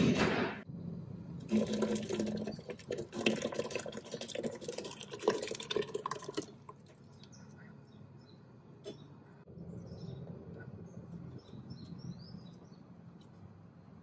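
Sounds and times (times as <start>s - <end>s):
thick paste pouring and splashing: 1.5s - 7.2s.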